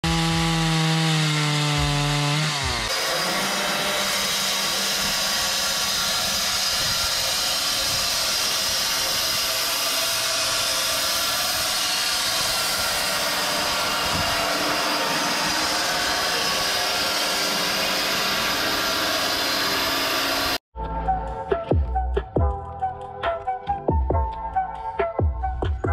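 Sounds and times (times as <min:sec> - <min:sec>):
band saw blade cutting log: 0:00.0 - 0:20.6
chainsaw engine revving: 0:00.0 - 0:20.6.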